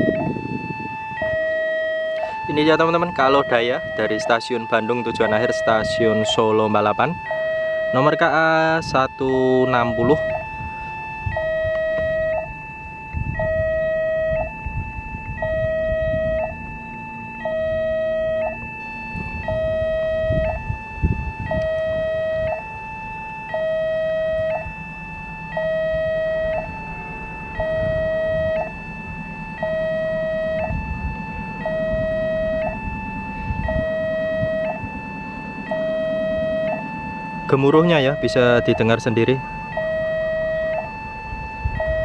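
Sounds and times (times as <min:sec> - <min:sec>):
two-tone crossing alarm: 0:00.0 - 0:42.0.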